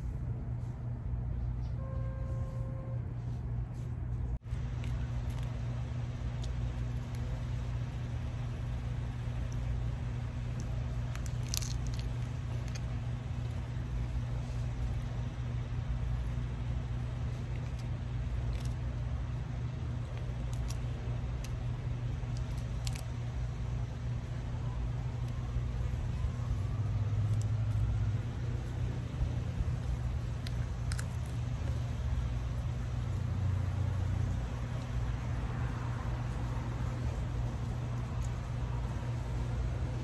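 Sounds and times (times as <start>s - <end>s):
low machine hum: 0.0s - 40.0s
shrimp being peeled and eaten: 4.5s - 39.5s.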